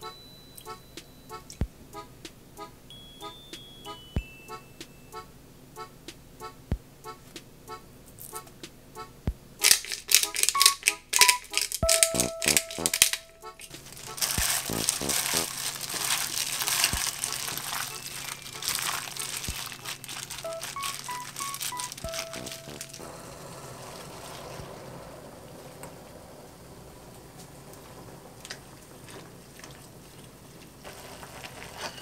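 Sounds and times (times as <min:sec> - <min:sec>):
soft background music: 0:00.0 - 0:24.4
plastic glove crinkling: 0:09.6 - 0:23.0, 0:29.4 - 0:32.0.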